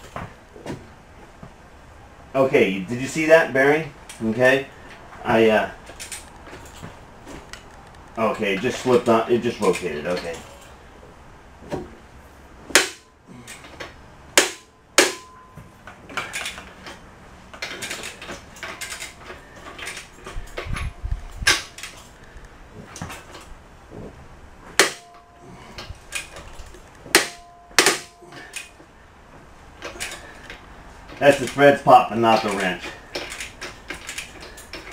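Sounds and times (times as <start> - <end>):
steel bolts cracking loose: 5.8 - 10.7, 12.7 - 23.5, 24.7 - 28.8, 29.8 - 34.9
wrench clinking on metal: 24.7 - 28.8.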